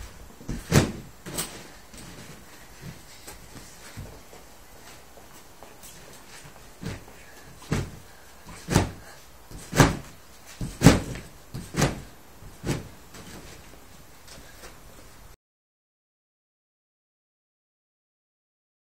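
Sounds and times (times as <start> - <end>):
person jumping and landing thumps: 0.4 - 3.0, 6.3 - 14.8.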